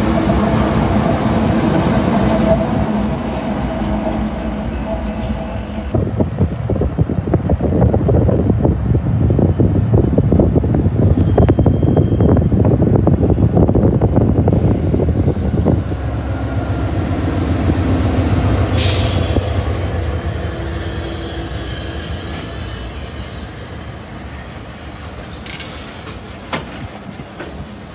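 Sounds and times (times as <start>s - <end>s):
diesel locomotive rumble: 0.0s - 27.9s
train cars rolling by: 0.0s - 27.9s
steel wheels squealing: 10.6s - 12.8s, 18.6s - 26.9s.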